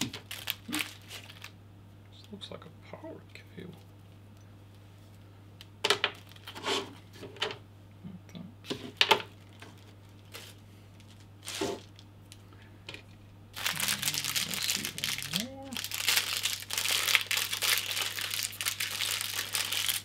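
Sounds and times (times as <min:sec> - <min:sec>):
plastic bag crinkling: 0:00.0 - 0:01.6, 0:06.0 - 0:06.6, 0:09.2 - 0:12.1, 0:13.6 - 0:20.0
plastic bags rustling and clicking: 0:00.0 - 0:01.6, 0:05.9 - 0:07.6, 0:08.7 - 0:12.4, 0:13.6 - 0:20.0
faint low hum: 0:00.0 - 0:20.0.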